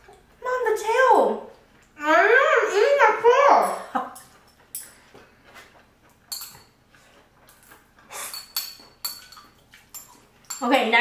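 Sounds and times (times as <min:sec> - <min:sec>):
chopsticks clinking bowls: 0:03.5 - 0:05.1, 0:05.7 - 0:11.0.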